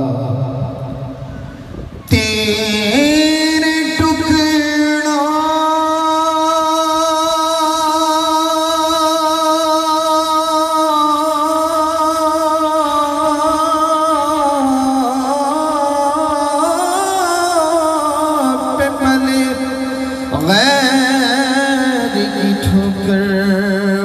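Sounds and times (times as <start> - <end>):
man singing long sustained note: 0.0 - 24.0.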